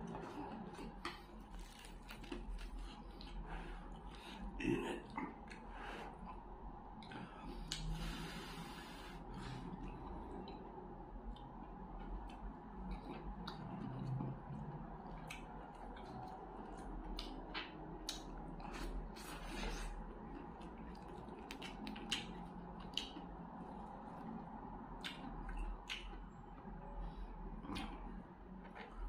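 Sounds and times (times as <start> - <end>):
chewing: 0.0 - 6.4, 11.3 - 27.0, 27.6 - 29.0.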